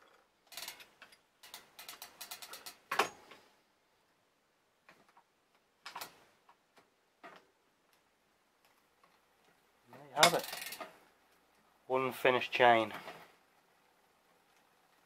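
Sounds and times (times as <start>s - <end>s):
bike chain clicking on cogs: 0.0s - 3.0s, 9.9s - 11.6s.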